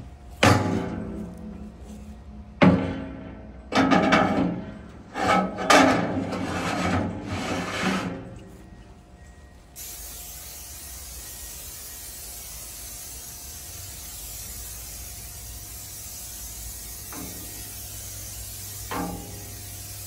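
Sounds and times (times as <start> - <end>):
aerosol spray hissing: 9.8 - 20.0.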